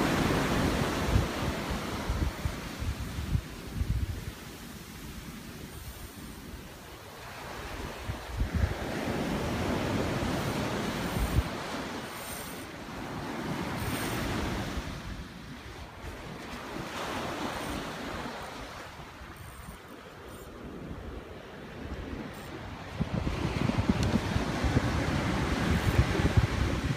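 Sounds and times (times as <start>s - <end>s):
ocean surf breaking: 0.0s - 26.9s
wind buffeting the microphone: 0.0s - 26.9s.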